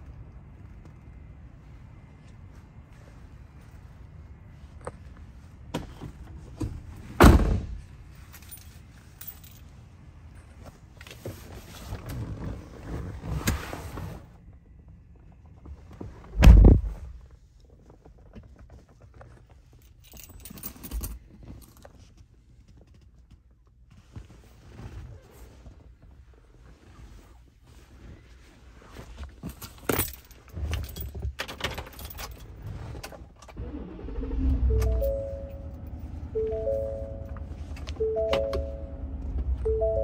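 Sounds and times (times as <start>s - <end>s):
keys jangling and clicking: 19.8s - 21.9s, 29.4s - 32.5s.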